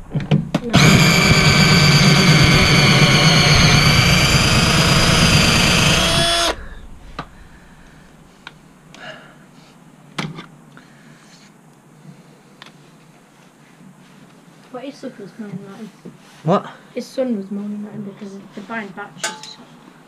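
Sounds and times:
cordless drill motor running: 0:00.7 - 0:07.4.

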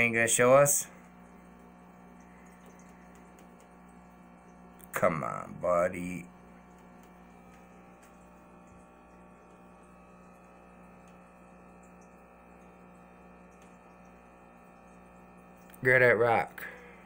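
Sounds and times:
aquarium equipment hum: 0:00.0 - 0:17.0
man speaking: 0:04.9 - 0:06.3, 0:15.8 - 0:16.7.

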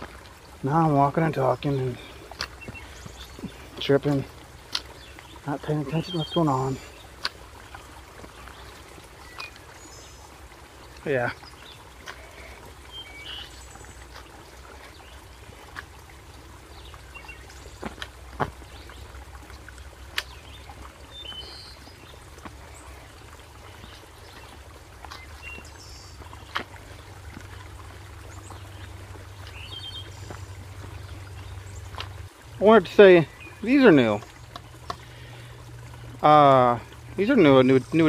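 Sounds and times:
bird chirps: 0:12.9 - 0:13.9
footsteps on rock: 0:17.7 - 0:18.7, 0:22.4 - 0:22.7, 0:29.4 - 0:31.0.

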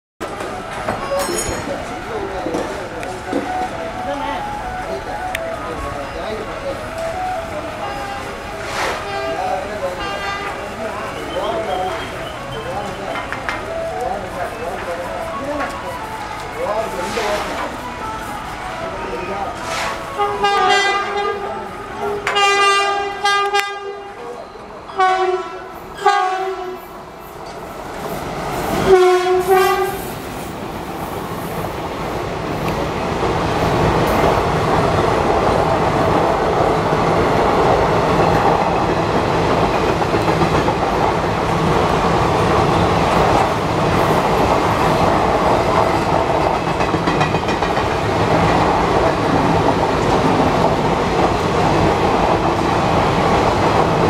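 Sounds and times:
train rumble and wheel clatter: 0:00.2 - 0:54.0
locomotive horn blasts: 0:07.8 - 0:10.7, 0:19.6 - 0:24.2, 0:24.9 - 0:26.9, 0:28.8 - 0:30.1.

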